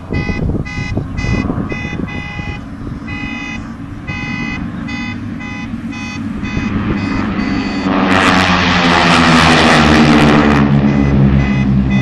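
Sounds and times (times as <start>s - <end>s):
alarm-like beeping tone: 0.1s - 8.0s, 10.7s - 12.0s.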